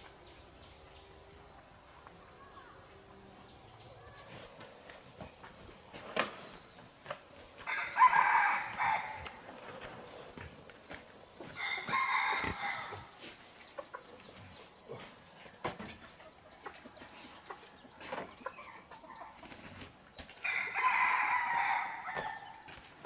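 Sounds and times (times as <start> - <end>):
rooster crowing: 7.6 - 9.4, 11.6 - 13.1, 20.4 - 22.6.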